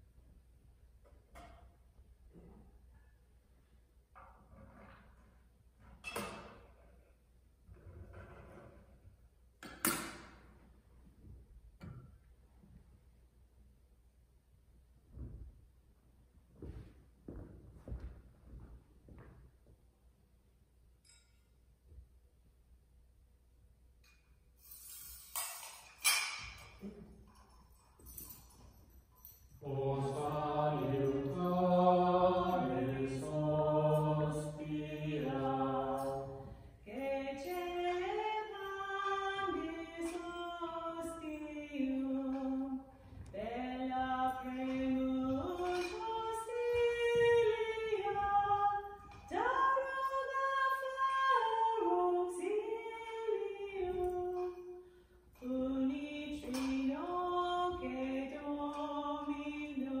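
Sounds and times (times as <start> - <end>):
lower voice singing hymn: 29.6 - 54.7, 55.4 - 60.0
woman singing hymn: 29.6 - 54.8, 55.4 - 60.0.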